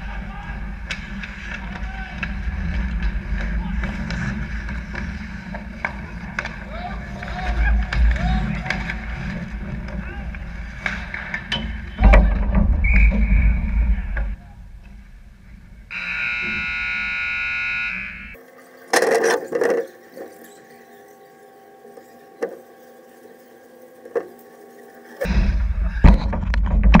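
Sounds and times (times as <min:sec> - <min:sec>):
skating and rink noise: 0:00.0 - 0:27.0
ice rink horn blast: 0:15.9 - 0:18.4.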